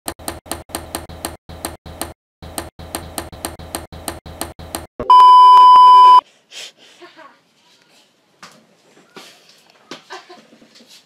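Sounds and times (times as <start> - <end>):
test-tone beep: 5.0 - 6.2.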